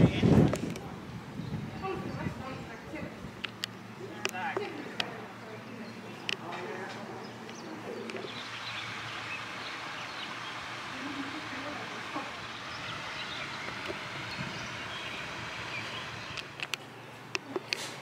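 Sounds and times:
faint indistinct voices: 0.0s - 14.2s
outdoor background hiss: 0.0s - 18.0s.

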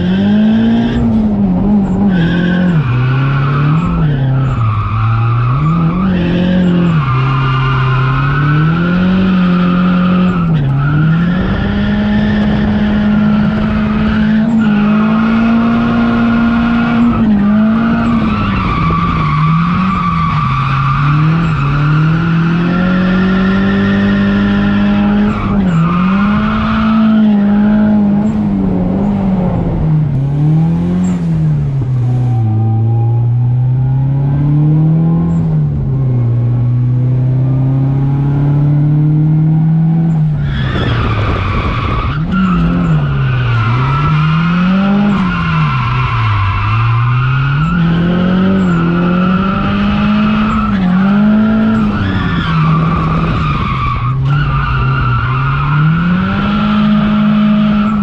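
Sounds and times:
car engine revving: 0.0s - 58.0s
tires squealing and skidding: 1.8s - 28.0s, 40.1s - 58.0s.

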